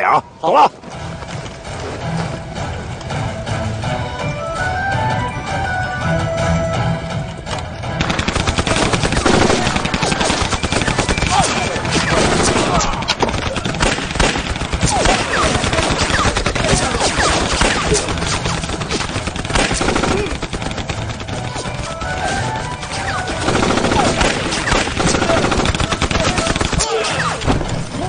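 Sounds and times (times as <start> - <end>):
music: 0.0 - 28.0
rapid automatic gunfire: 8.0 - 27.2.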